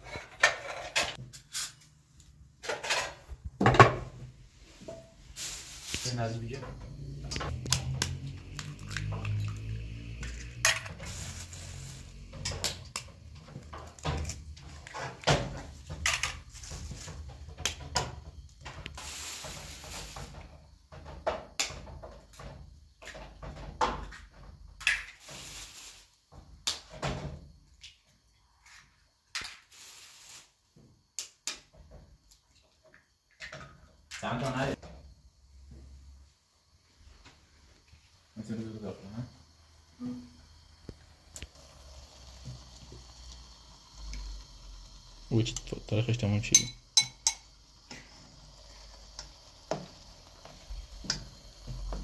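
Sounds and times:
clinks against glass bowl: 0:46.5 - 0:47.5
spoon tapping eggshells: 0:46.5 - 0:47.5.

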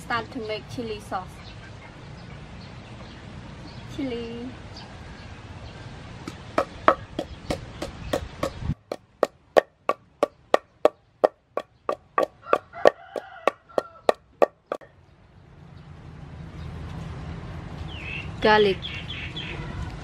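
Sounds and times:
wooden pestle pounding in mortar: 0:06.3 - 0:14.9.

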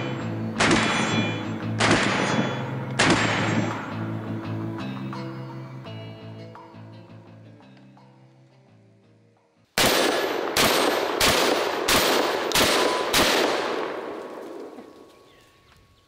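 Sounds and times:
shotgun shots echoing: 0:00.0 - 0:04.4, 0:09.8 - 0:15.3
soft background music: 0:00.0 - 0:09.8.

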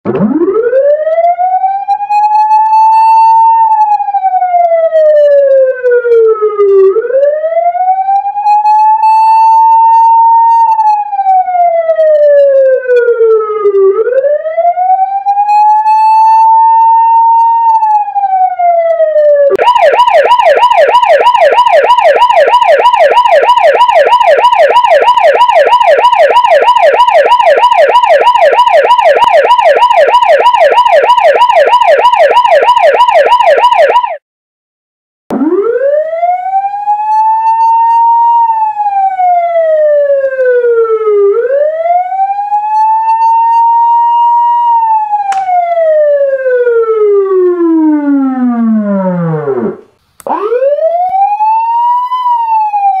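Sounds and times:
police siren wailing and yelping: 0:00.0 - 0:34.2, 0:35.3 - 0:53.0.

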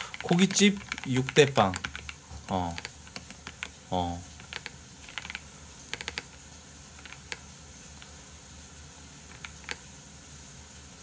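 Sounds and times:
keyboard keystrokes: 0:00.0 - 0:03.7, 0:04.4 - 0:06.3, 0:07.0 - 0:07.4, 0:09.3 - 0:09.8
faint steady hiss: 0:00.0 - 0:11.0.

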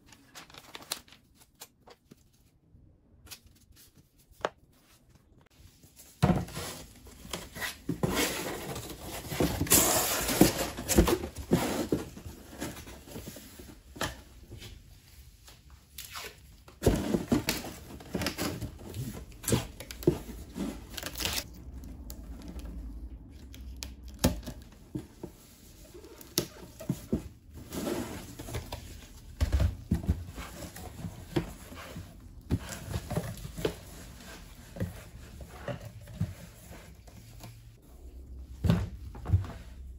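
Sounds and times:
cardboard boxes being handled: 0:05.8 - 0:14.8, 0:16.7 - 0:21.5, 0:24.7 - 0:39.9.

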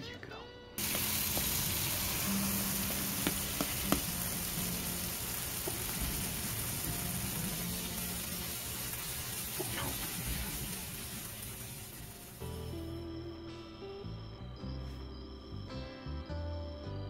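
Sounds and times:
food sizzling on a griddle: 0:00.8 - 0:12.6.

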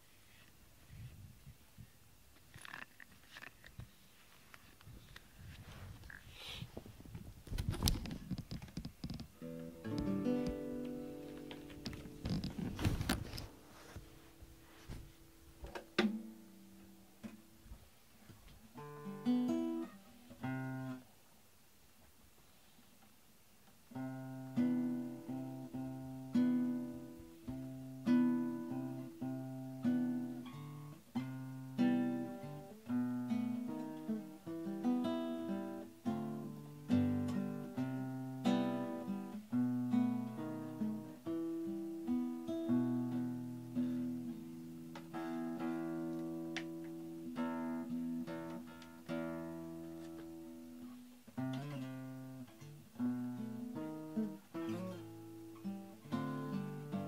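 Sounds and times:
acoustic guitar playing: 0:09.1 - 0:17.7, 0:18.7 - 0:21.0, 0:23.9 - 0:57.0.

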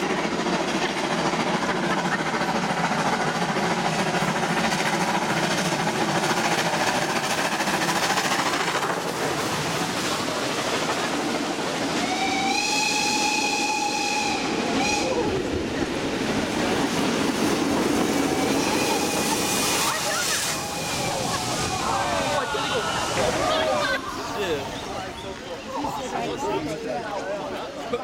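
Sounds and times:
steam train exhaust and rolling: 0:00.0 - 0:28.0
steam whistle: 0:12.0 - 0:15.4.

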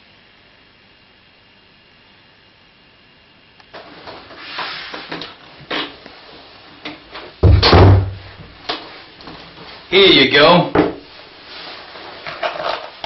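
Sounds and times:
door banging thud: 0:07.4 - 0:08.3.

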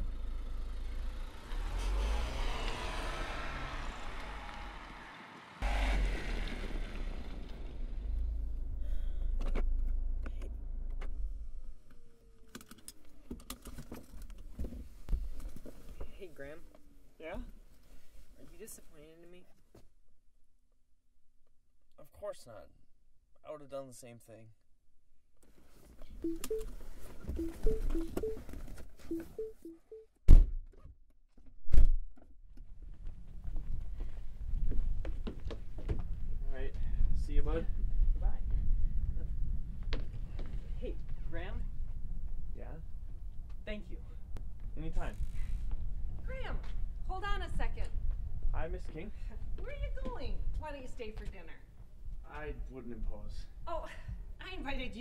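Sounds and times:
car engine rumble: 0:00.0 - 0:12.3
soft short tones: 0:27.4 - 0:28.4.

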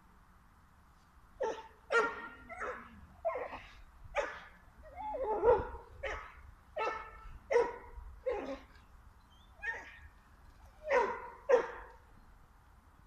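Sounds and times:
dog barking: 0:01.4 - 0:03.6, 0:04.2 - 0:04.5, 0:05.3 - 0:08.6, 0:10.8 - 0:11.9.

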